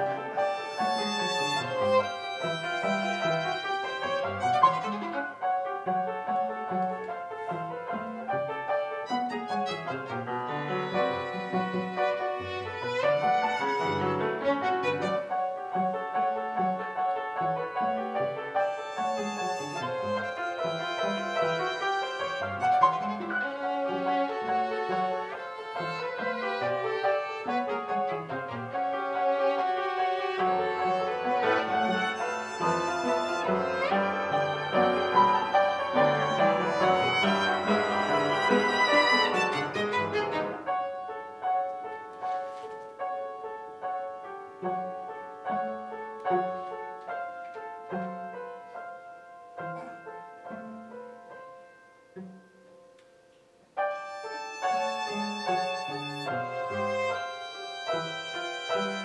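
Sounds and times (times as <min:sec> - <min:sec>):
piano violin and cello trio: 0:00.0 - 0:51.4, 0:52.0 - 0:59.0.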